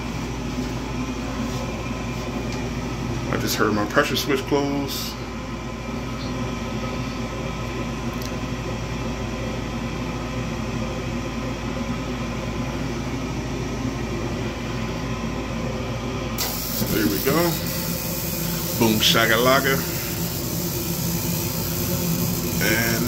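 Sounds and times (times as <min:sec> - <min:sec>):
furnace draft motor humming: 0:00.0 - 0:23.0
gas burners lighting with a hiss: 0:16.4 - 0:23.0.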